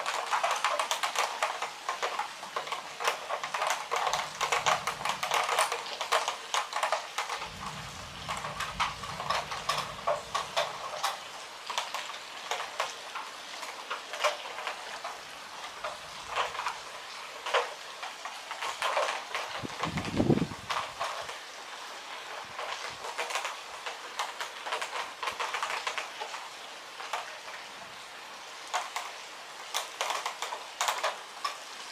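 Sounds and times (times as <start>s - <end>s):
rain drops tapping: 0.0s - 31.9s
low thunder rumble: 4.1s - 5.5s, 7.4s - 11.4s, 19.7s - 20.9s.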